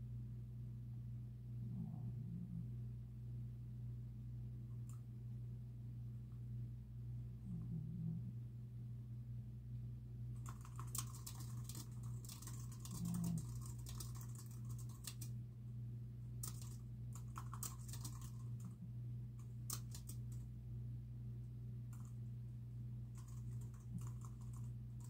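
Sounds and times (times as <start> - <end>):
steady low hum: 0.0 - 25.0
fast typing on keyboard: 10.4 - 15.3, 16.4 - 18.8, 19.4 - 20.4, 21.9 - 22.2, 23.1 - 25.0.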